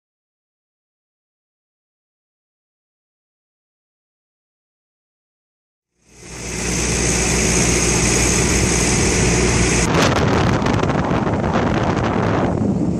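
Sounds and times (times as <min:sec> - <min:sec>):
forklift engine running: 0:06.0 - 0:12.9
wind buffeting microphone: 0:06.7 - 0:12.9.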